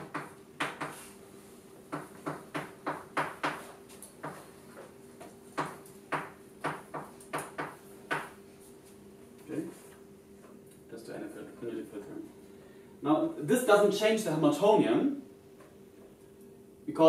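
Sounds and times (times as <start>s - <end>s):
chalk tapping on blackboard: 0.0s - 1.2s, 1.9s - 4.5s, 5.2s - 8.4s.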